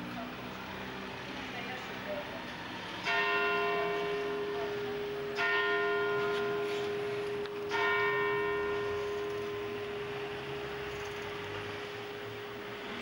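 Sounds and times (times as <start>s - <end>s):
large church bell tolling: 3.0s - 12.8s.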